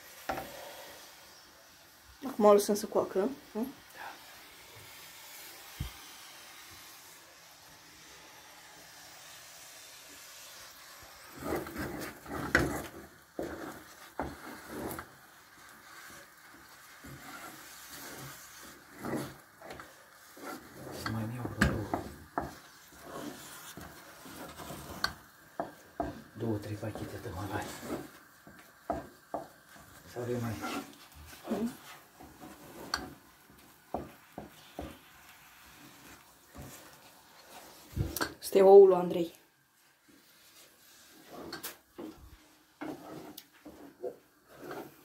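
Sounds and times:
faint steady hiss: 0:00.0 - 0:45.0
spoon scraping in a metal pot: 0:21.9 - 0:26.3, 0:30.5 - 0:33.2, 0:42.8 - 0:43.9.

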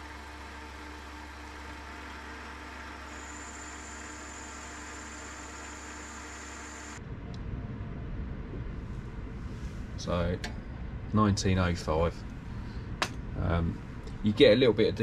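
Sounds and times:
metal lathe humming: 0:00.0 - 0:07.0
thin high whine: 0:00.9 - 0:07.0.

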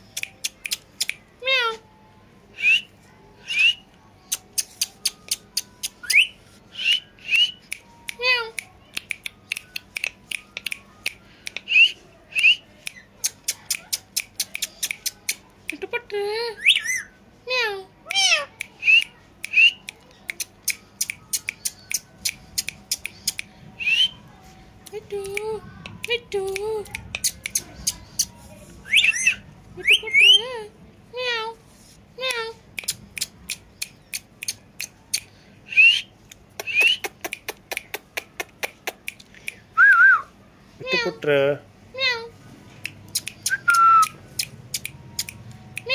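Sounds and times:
parakeet chirps: 0:27.0 - 0:30.4.

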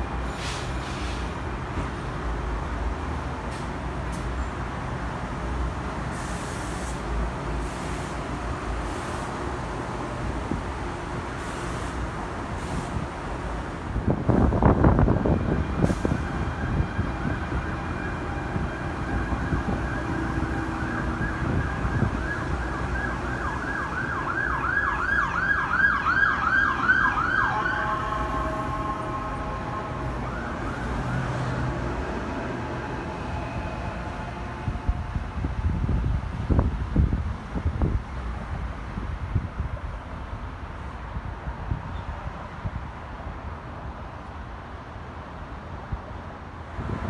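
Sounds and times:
traffic noise: 0:00.0 - 0:47.0
emergency vehicle siren: 0:14.0 - 0:36.7.

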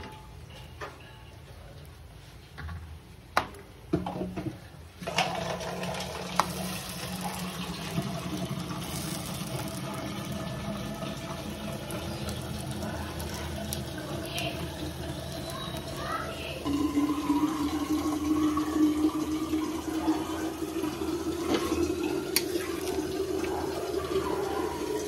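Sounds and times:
water running from a tap: 0:05.0 - 0:25.0.

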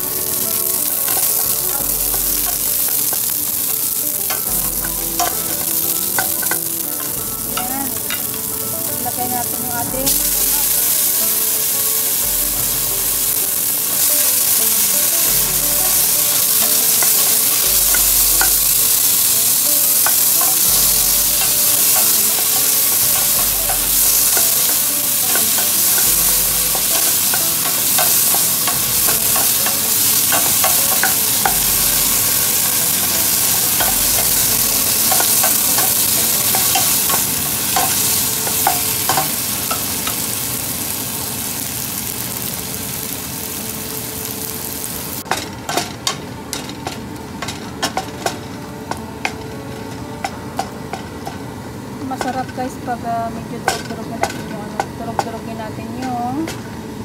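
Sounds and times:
food sizzling in oil: 0:00.0 - 0:56.6
utensil scraping a metal pot: 0:13.2 - 0:40.3.

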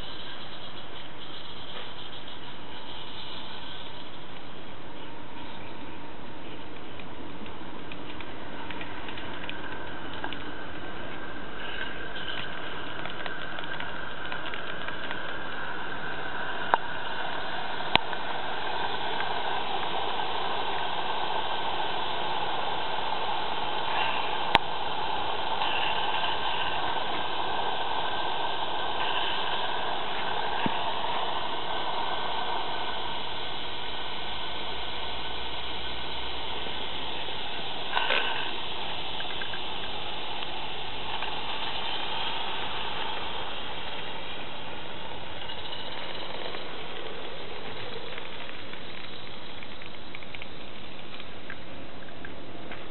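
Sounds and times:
steam locomotive hissing: 0:08.4 - 0:49.8.

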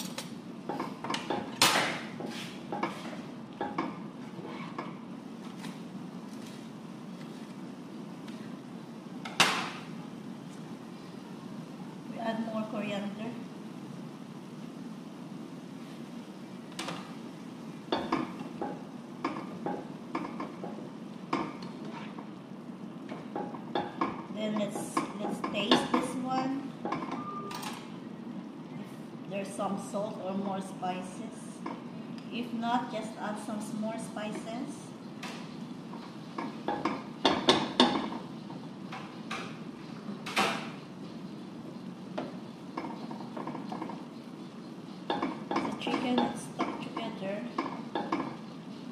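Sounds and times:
spatula scraping frying pan: 0:02.2 - 0:03.3, 0:21.6 - 0:22.3.

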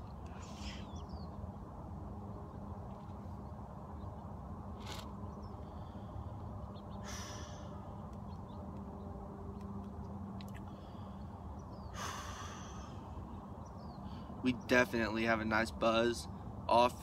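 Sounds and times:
faint bird calls: 0:00.0 - 0:01.4, 0:04.8 - 0:08.6, 0:10.4 - 0:14.7
low hum: 0:00.0 - 0:14.7
smoker breathing out: 0:07.0 - 0:07.8, 0:11.9 - 0:13.1.

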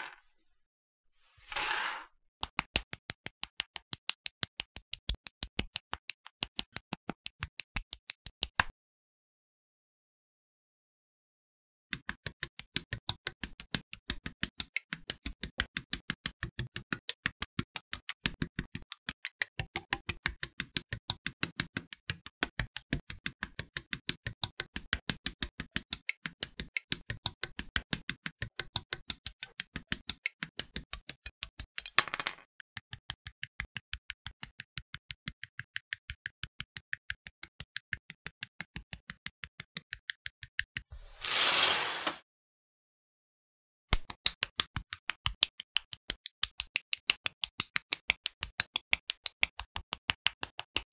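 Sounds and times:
rustling scrape: 0:01.3 - 0:02.1, 0:41.0 - 0:42.2.

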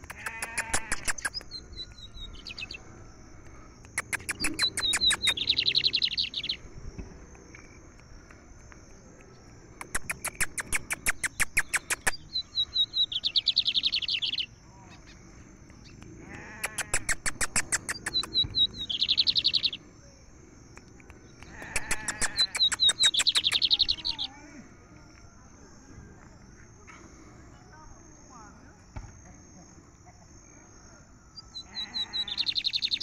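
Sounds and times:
bird singing clicks and trill: 0:00.0 - 0:02.8, 0:03.4 - 0:06.6, 0:07.4 - 0:19.8, 0:20.7 - 0:24.3, 0:31.4 - 0:33.0.

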